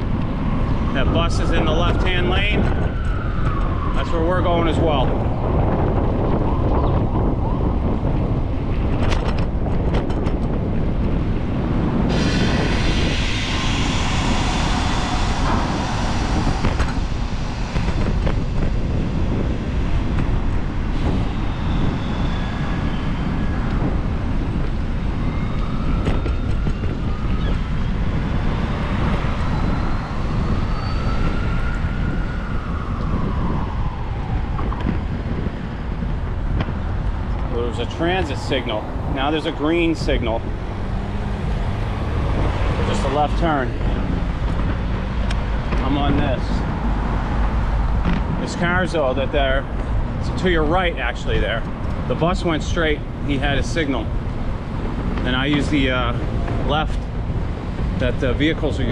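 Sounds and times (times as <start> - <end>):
city traffic: 0.0 - 58.9
wind rumbling on microphone: 0.0 - 58.9
high hiss: 12.1 - 23.4
faint whistling tones: 29.3 - 33.0.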